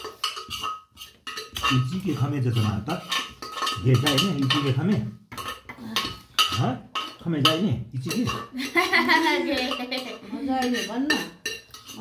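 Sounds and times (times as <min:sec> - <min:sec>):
dishes and cutlery clinking: 0:00.0 - 0:12.0
people talking: 0:03.8 - 0:05.1, 0:09.0 - 0:11.3.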